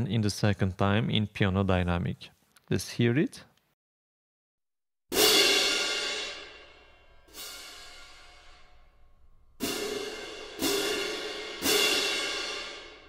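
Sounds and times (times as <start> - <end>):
hand cymbal crashes: 5.1 - 13.0
cymbal swish: 5.2 - 8.9.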